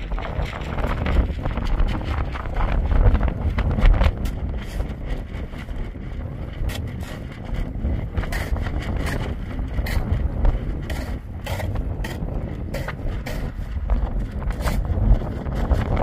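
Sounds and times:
wind rumbling on microphone: 0.0s - 16.0s
shovel scraping stony soil: 3.6s - 5.3s, 6.6s - 16.0s.

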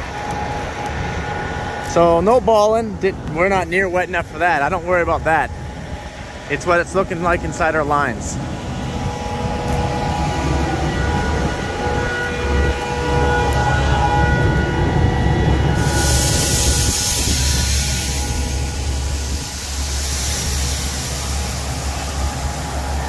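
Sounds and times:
tractor drone with whine: 0.0s - 23.0s
loud rushing hiss: 15.6s - 23.0s.

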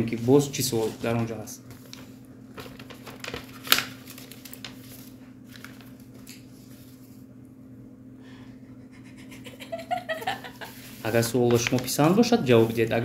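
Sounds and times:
paper rustling: 0.1s - 7.2s, 10.6s - 13.0s
paper crackle: 0.2s - 7.0s, 10.7s - 13.0s.

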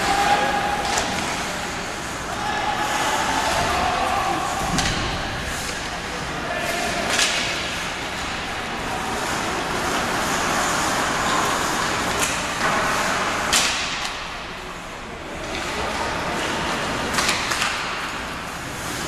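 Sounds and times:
stick and puck clacks: 0.1s - 1.5s, 6.8s - 8.4s, 9.2s - 14.4s, 15.4s - 19.0s.

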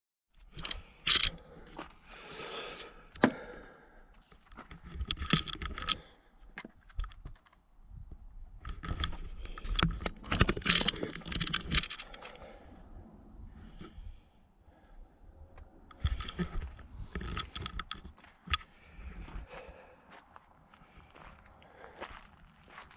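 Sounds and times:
gear rustling and scraping: 0.4s - 3.2s, 4.2s - 7.6s, 8.5s - 12.8s, 15.9s - 19.5s
sharp clicks and knocks: 8.6s - 12.4s, 15.9s - 18.7s.

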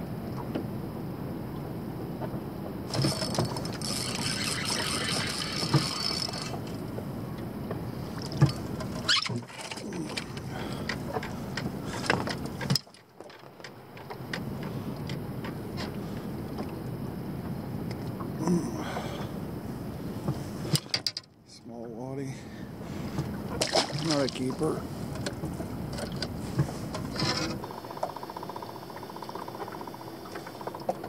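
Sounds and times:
fishing gear clicks and rattles: 2.9s - 6.8s, 8.2s - 15.9s, 20.7s - 21.3s, 23.6s - 28.5s.

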